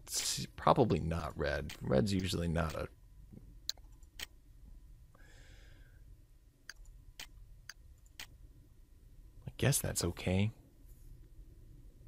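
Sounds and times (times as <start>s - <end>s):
low steady hum: 0.0s - 12.0s
faint breathy noise: 5.1s - 6.2s
computer mouse clicking: 6.7s - 8.4s.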